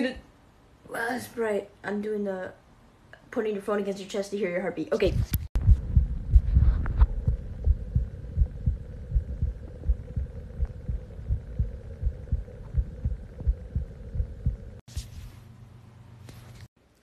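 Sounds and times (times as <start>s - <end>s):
faint steady hum: 0.0s - 17.0s
muffled heartbeat thumps: 5.0s - 14.8s.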